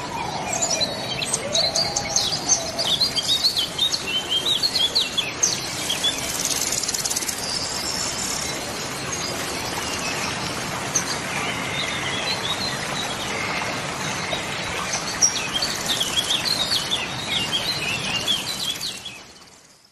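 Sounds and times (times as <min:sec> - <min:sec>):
gulls calling: 0:00.0 - 0:07.8.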